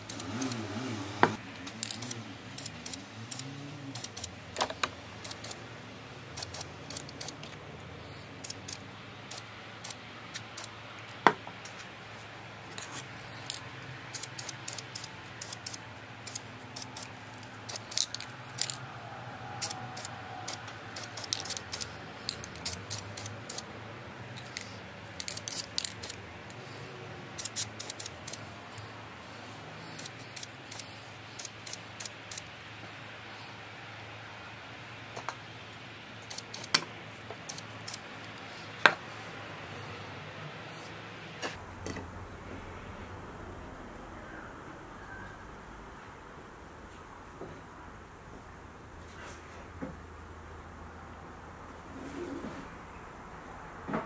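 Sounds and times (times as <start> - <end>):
spray paint can hissing: 0.0 - 0.8, 1.6 - 4.4, 5.2 - 5.6, 6.3 - 7.5, 8.1 - 10.8, 12.8 - 18.8, 19.6 - 23.7, 24.3 - 26.2, 27.4 - 28.6, 29.8 - 32.5, 36.2 - 36.8, 37.4 - 38.0.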